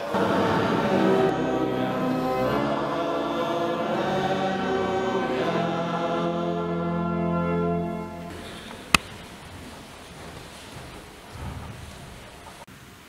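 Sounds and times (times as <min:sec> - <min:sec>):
choir singing in a church: 0:00.0 - 0:08.7.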